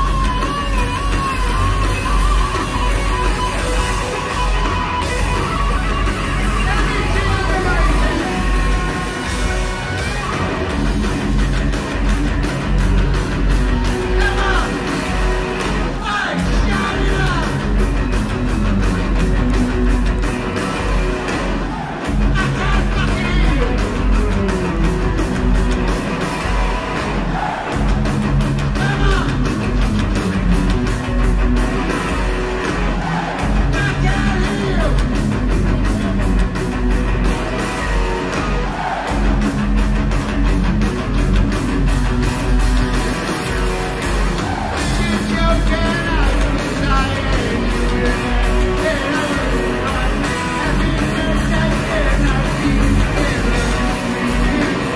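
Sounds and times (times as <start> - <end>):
heavy metal band playing: 0.0 - 54.9
man singing: 44.9 - 54.9.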